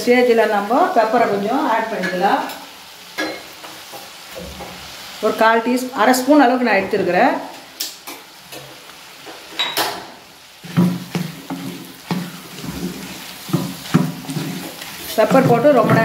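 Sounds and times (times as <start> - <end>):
light sizzle: 0.0 - 16.0
spatula scraping clay pot: 11.5 - 16.0.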